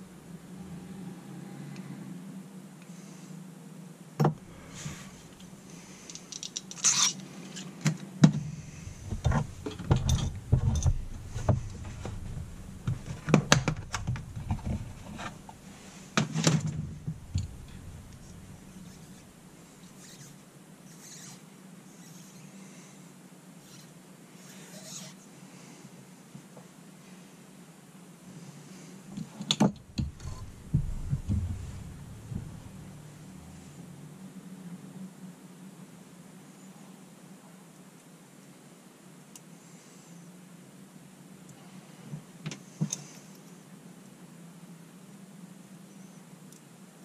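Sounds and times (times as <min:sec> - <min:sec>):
faint rustling: 0:04.2 - 0:22.9, 0:28.5 - 0:34.2.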